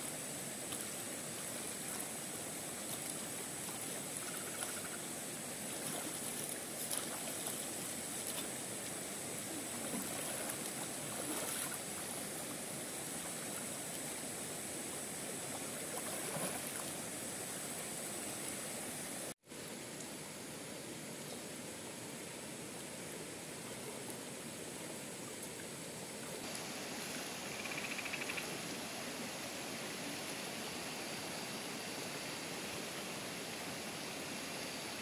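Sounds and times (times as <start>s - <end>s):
stream running over rocks: 0.0s - 35.0s
splashes in water: 5.6s - 8.5s, 9.7s - 12.5s, 15.4s - 17.0s.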